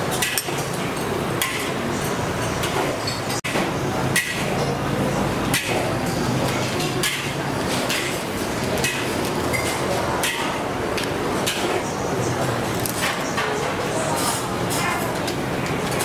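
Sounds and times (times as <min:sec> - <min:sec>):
busy cooking stall din: 0:00.0 - 0:16.0
metal utensils clanking: 0:05.5 - 0:10.6.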